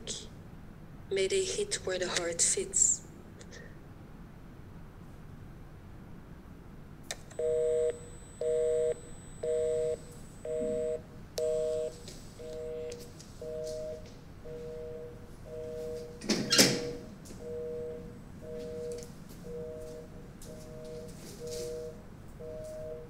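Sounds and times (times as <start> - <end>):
telephone busy signal: 7.3 - 23.0.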